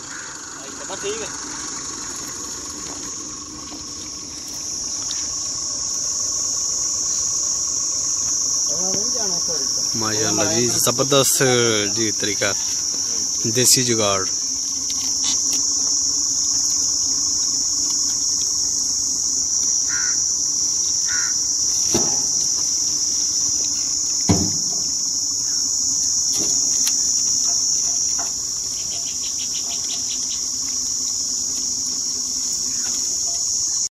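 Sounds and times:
high-pitched insect chorus: 0.0s - 33.9s
short knocks: 24.3s - 24.7s.

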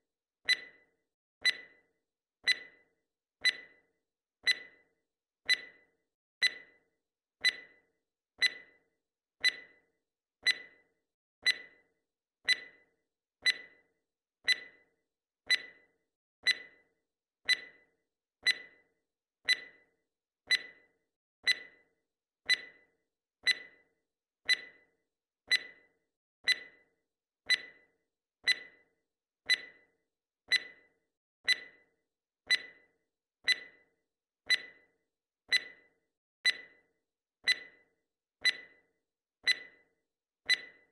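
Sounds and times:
short sharp timer ticks: 0.4s - 2.8s, 3.4s - 3.8s, 4.4s - 6.8s, 7.4s - 8.8s, 9.4s - 9.8s, 10.4s - 10.8s, 11.4s - 14.9s, 15.5s - 18.8s, 19.4s - 19.9s, 20.5s - 21.9s, 22.5s - 23.9s, 24.5s - 24.9s, 25.5s - 26.9s, 27.5s - 28.9s, 29.5s - 29.9s, 30.5s - 31.9s, 32.5s - 40.9s.

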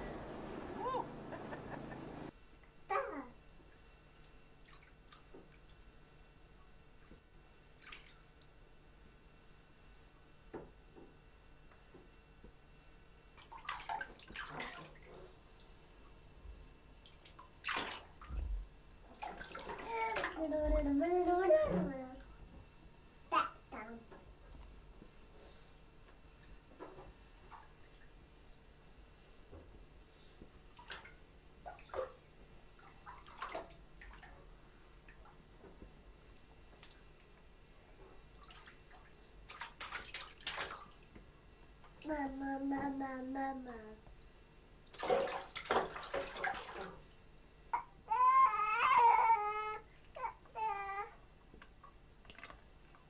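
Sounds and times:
bath water splashing: 13.4s - 15.1s, 17.6s - 18.3s, 19.1s - 20.4s, 32.8s - 34.3s, 38.4s - 41.0s, 44.9s - 47.1s.

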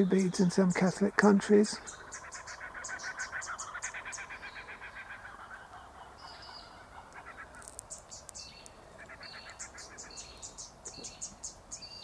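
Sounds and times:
rapid pulsing animal call: 0.9s - 7.7s, 8.9s - 10.6s.

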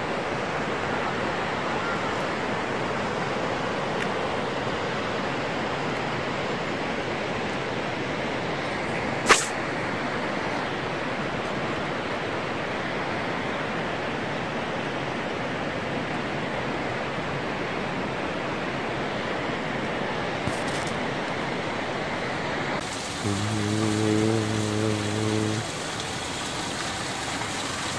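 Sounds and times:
rushing outdoor hiss: 8.1s - 13.9s, 22.8s - 27.9s
sharp click: 9.3s - 9.6s.

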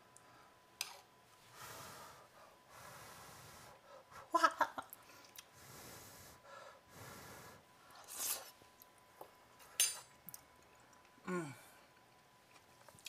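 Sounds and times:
breathing through the nose: 1.5s - 4.1s, 5.5s - 8.2s
person humming mm: 11.2s - 11.7s.

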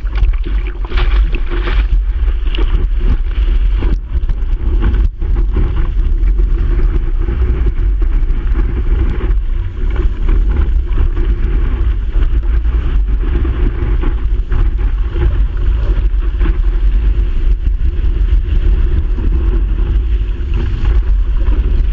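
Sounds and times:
rushing whitewater: 0.0s - 2.7s
wind buffeting microphone: 0.0s - 21.9s.

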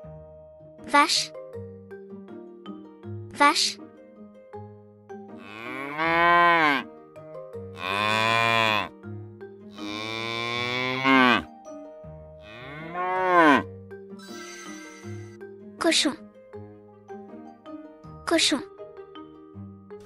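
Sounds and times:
cows mooing: 5.4s - 6.9s, 7.8s - 8.9s, 9.8s - 11.5s, 12.4s - 13.7s.

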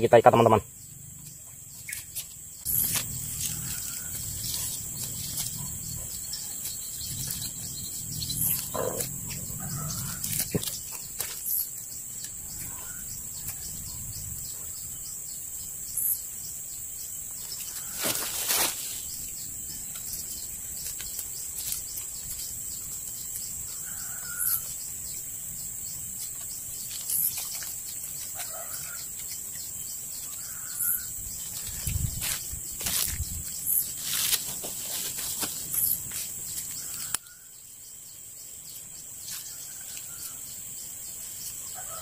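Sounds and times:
high insect drone: 0.0s - 42.0s
bird chirps: 19.0s - 32.3s.

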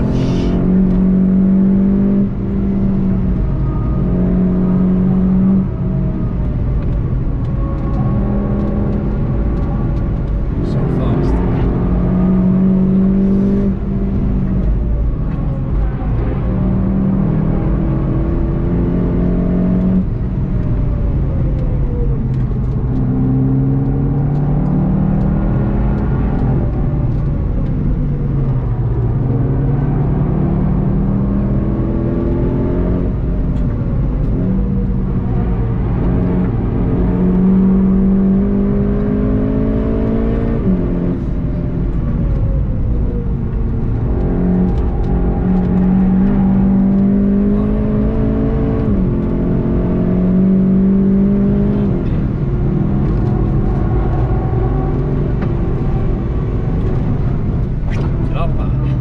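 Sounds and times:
car engine accelerating: 0.0s - 59.0s.

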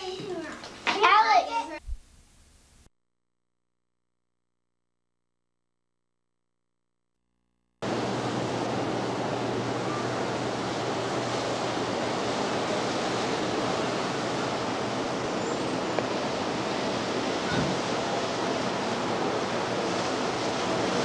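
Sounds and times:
ocean surf washing onto beach: 7.8s - 21.0s.

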